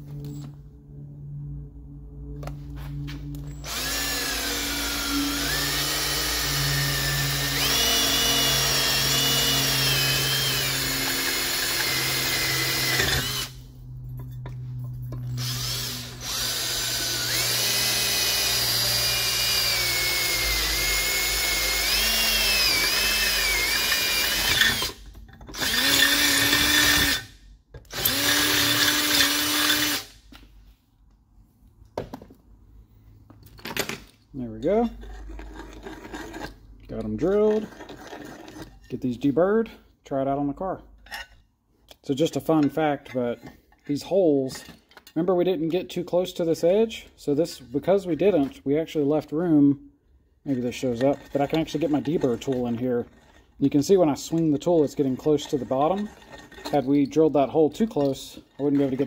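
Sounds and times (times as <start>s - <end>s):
power drill boring through metal: 3.5s - 13.6s, 15.2s - 30.2s, 50.5s - 57.1s.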